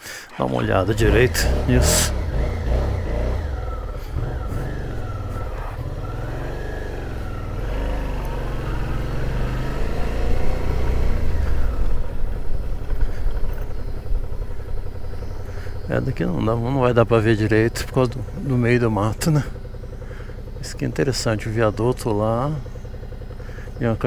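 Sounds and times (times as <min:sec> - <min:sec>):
motorcycle engine running: 0:00.4 - 0:24.0.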